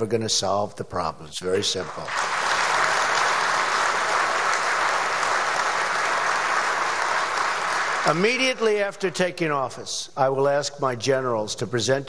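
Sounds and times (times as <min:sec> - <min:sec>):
audience applauding: 0:01.8 - 0:08.6.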